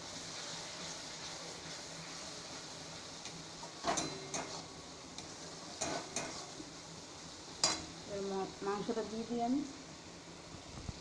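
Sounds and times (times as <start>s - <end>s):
paste sizzling in a wok: 0.0s - 11.0s
metal spatula scraping a wok: 3.9s - 4.8s, 5.7s - 6.6s.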